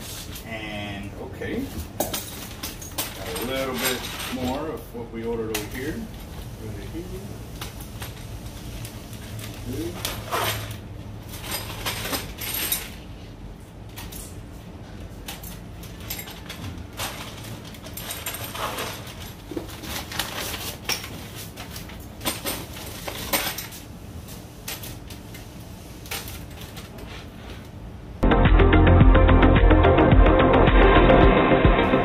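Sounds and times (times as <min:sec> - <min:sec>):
plastic bag rustling: 0:16.4 - 0:22.0.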